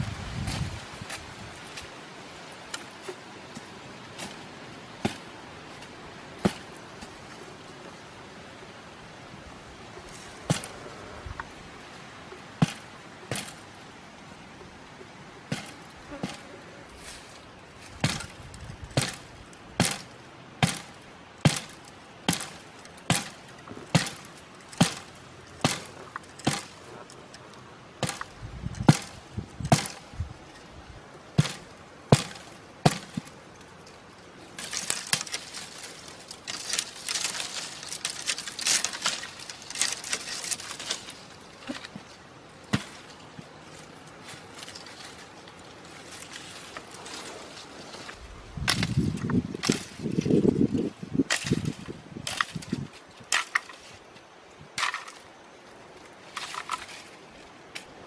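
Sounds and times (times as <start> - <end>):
scraping and rustling of soil: 0.0 - 58.0
hand tool striking soil: 2.6 - 7.4, 10.0 - 11.5, 12.4 - 13.8, 15.4 - 30.3, 31.3 - 33.8, 34.4 - 45.3, 48.0 - 55.2.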